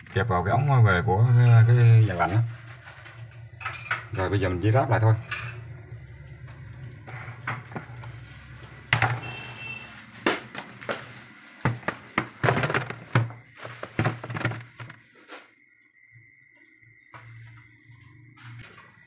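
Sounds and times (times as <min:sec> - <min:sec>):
low hum: 0:01.2 - 0:09.9
plastic parts clicking and knocking: 0:11.6 - 0:15.0.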